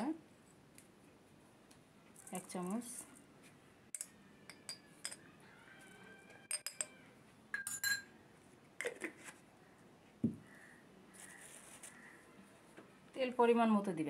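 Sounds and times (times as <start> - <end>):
spoon clinking on metal kitchenware: 3.9 - 5.3, 6.5 - 8.1.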